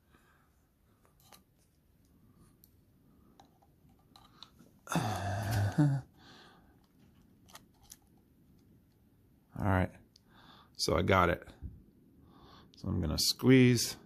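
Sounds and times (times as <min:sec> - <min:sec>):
person breathing: 0:00.0 - 0:01.3, 0:04.2 - 0:06.9, 0:10.2 - 0:10.8, 0:12.2 - 0:12.8
person grunting with effort: 0:04.9 - 0:06.1.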